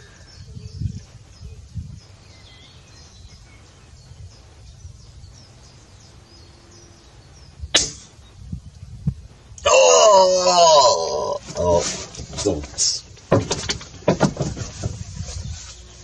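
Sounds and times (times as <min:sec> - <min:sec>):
air rifle shot crack: 0:07.7 - 0:08.2.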